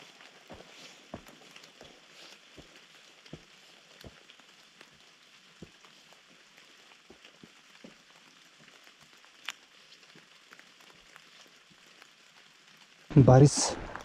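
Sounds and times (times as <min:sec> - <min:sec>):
raindrops ticking: 0:00.0 - 0:14.0
rain hissing: 0:10.5 - 0:14.0.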